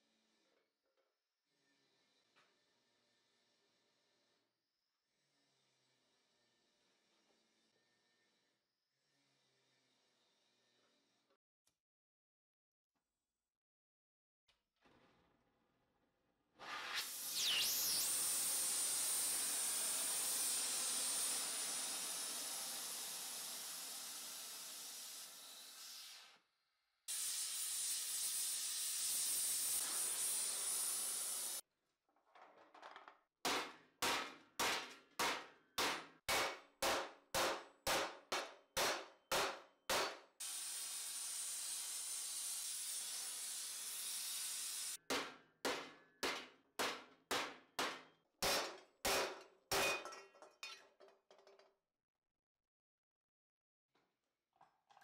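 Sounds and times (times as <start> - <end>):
gas torch hissing: 16.6 - 26.3, 27.1 - 31.6.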